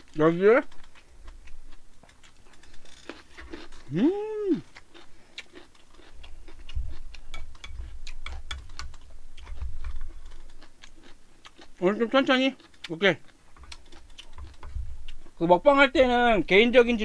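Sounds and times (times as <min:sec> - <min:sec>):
wet chewing: 0:00.0 - 0:15.4
person humming: 0:03.8 - 0:04.7.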